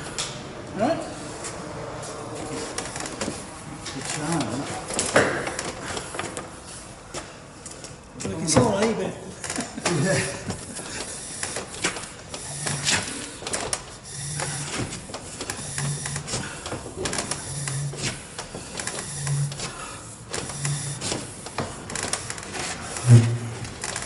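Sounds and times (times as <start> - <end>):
plastic pipe rubbing on wood: 17.2 - 18.3, 20.3 - 21.7.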